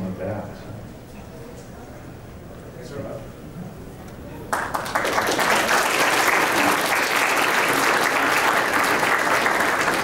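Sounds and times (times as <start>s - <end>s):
audience applauding: 4.5s - 10.0s.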